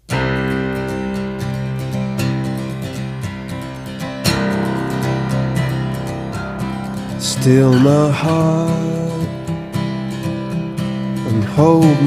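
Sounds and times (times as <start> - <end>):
acoustic guitar strumming chords: 0.0 - 12.0.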